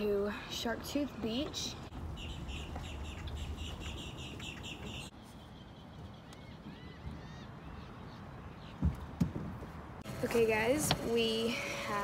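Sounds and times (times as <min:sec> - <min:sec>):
bird chirping rapidly: 0:01.9 - 0:08.9.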